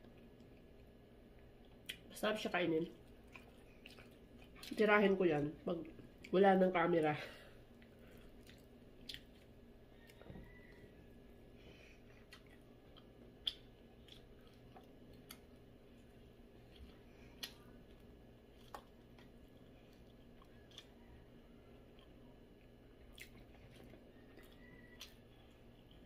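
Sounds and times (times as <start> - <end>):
person chewing: 3.0 - 4.8, 7.6 - 26.0.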